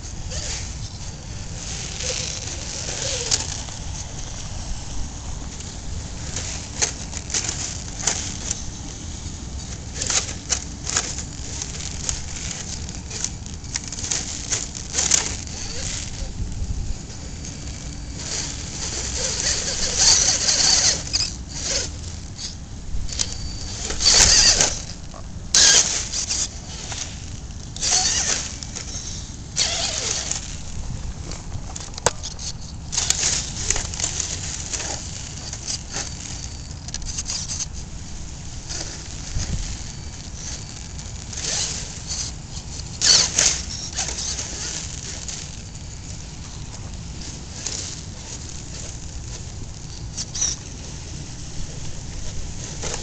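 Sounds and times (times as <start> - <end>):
steady low rumble: 0.0 - 20.4
electric motor whirring in bursts: 0.0 - 53.0
wind rumbling on microphone: 0.0 - 53.0.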